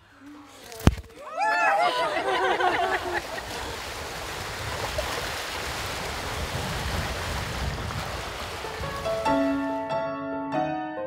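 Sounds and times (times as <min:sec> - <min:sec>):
waves lapping against rocks: 0:02.4 - 0:09.4.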